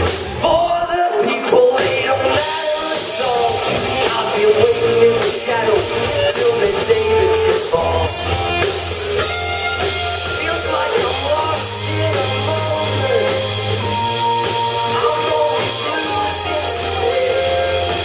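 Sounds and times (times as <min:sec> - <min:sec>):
bass guitar: 0:00.0 - 0:18.0
drum kit: 0:00.0 - 0:18.0
electric guitars: 0:00.0 - 0:18.0
keyboard: 0:00.0 - 0:18.0
man singing: 0:00.4 - 0:08.4, 0:09.8 - 0:18.0.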